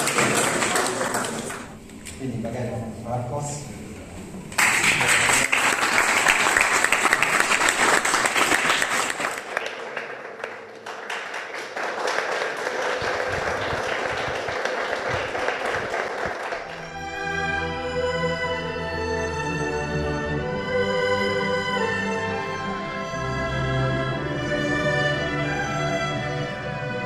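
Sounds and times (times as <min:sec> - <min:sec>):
audience applauding: 0:00.0 - 0:01.7, 0:04.5 - 0:17.2
music: 0:16.7 - 0:27.0.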